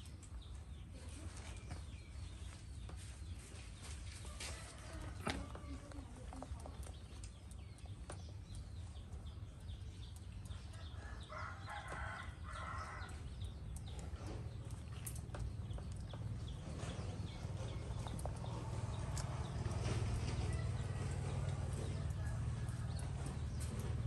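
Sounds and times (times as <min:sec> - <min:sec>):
small clicks and picking sounds: 0:04.0 - 0:11.1, 0:13.0 - 0:24.0.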